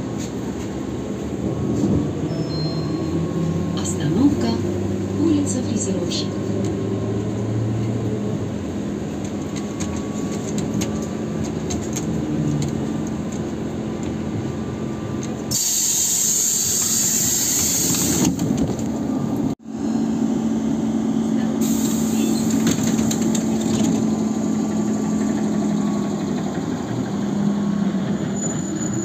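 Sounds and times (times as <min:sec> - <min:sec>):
trolleybus interior hum: 0:00.0 - 0:29.0
compressed air hiss of doors: 0:15.5 - 0:18.4, 0:21.6 - 0:22.6.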